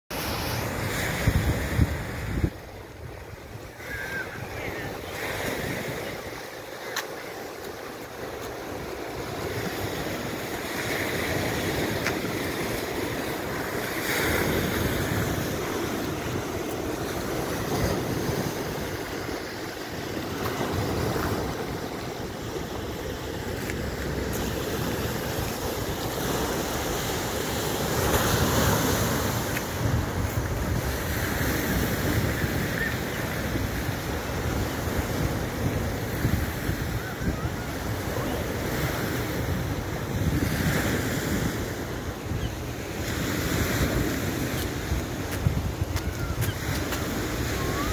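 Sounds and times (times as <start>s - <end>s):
wind on microphone: 0.1s - 47.9s
surf breaking on rocks: 3.7s - 32.8s.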